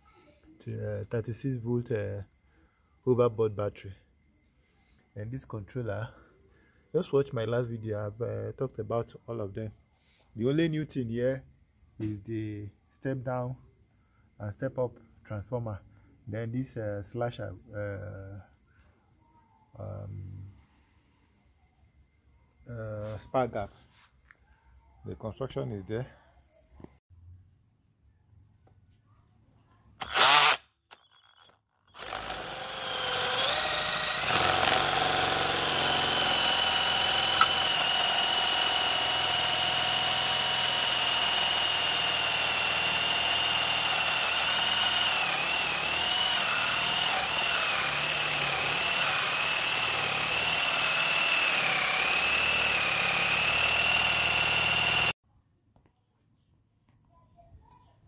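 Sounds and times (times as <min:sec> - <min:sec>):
electric drill with hole saw cutting wood: 0:30.0 - 0:55.2.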